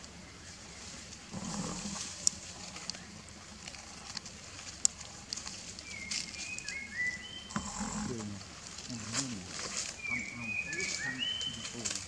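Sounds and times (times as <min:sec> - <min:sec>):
dry leaves crackling underfoot: 0:00.0 - 0:12.0.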